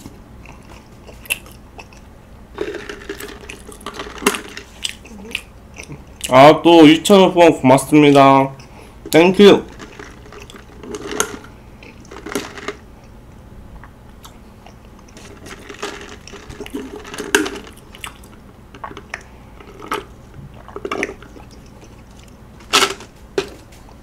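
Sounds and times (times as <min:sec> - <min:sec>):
chewing crunches: 0:00.0 - 0:06.4, 0:09.7 - 0:13.2, 0:13.8 - 0:22.7.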